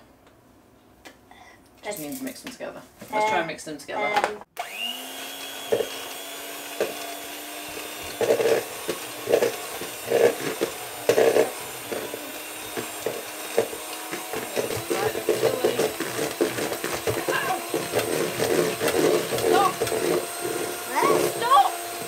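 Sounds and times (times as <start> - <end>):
electric hand mixer motor: 4.6 - 22.0
beaters knocking in plastic bowl: 7.8 - 21.4.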